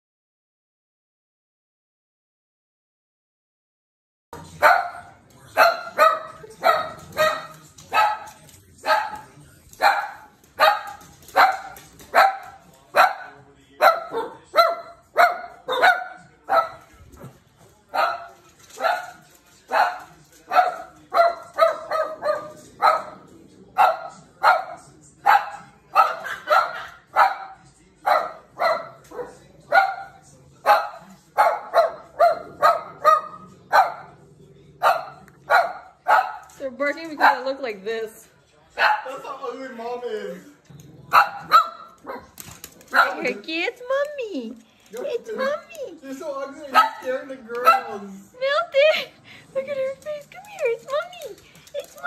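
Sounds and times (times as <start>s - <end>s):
dog barking: 4.6s - 9.2s, 9.8s - 17.3s, 17.9s - 34.2s, 34.8s - 36.5s, 38.8s - 39.2s, 41.1s - 43.4s, 46.7s - 48.1s.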